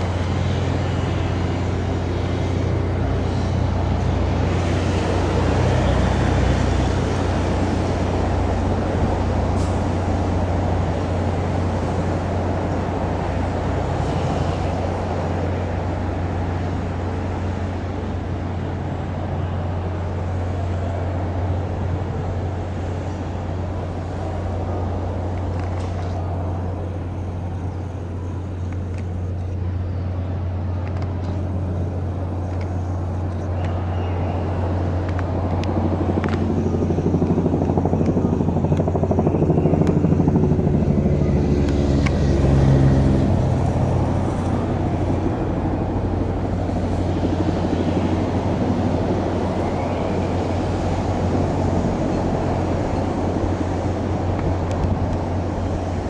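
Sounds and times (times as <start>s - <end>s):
low engine hum: 0.0s - 56.0s
vehicle engine passing: 31.1s - 56.0s.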